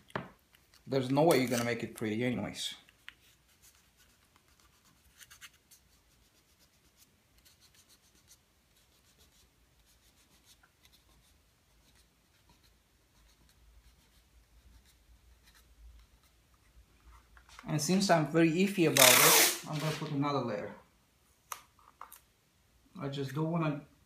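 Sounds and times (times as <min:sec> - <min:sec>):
tape scratching and rubbing: 0:02.9 - 0:17.6, 0:18.8 - 0:20.2.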